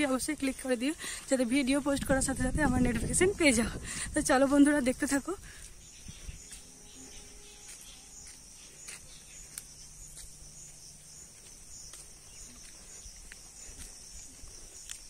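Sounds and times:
insects chorus: 0:00.0 - 0:15.0
faint ticks: 0:09.4 - 0:10.3, 0:14.8 - 0:15.0.

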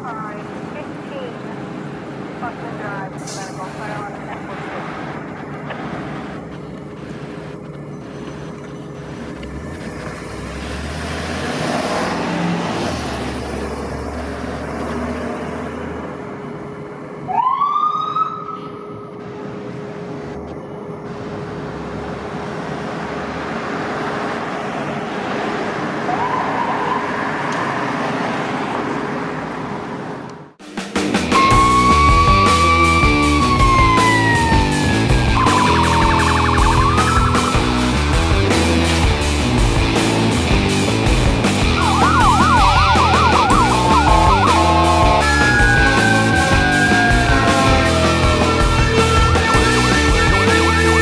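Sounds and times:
ambulance engine running: 0:00.0 - 0:51.0
street traffic: 0:00.0 - 0:51.0
siren rising whoop: 0:17.3 - 0:19.1, 0:31.4 - 0:38.0, 0:41.6 - 0:51.0.

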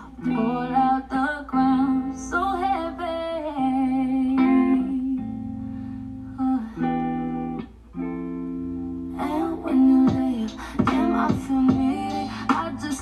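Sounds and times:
guitar chords: 0:00.0 - 0:13.0
vocal-like parts: 0:09.2 - 0:13.0
busy beat: 0:10.0 - 0:13.0.

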